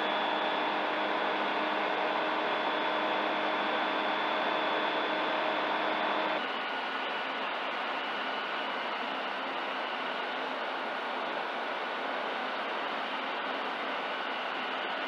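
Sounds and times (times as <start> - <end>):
aircraft engine and propeller droning: 0.0 - 6.4.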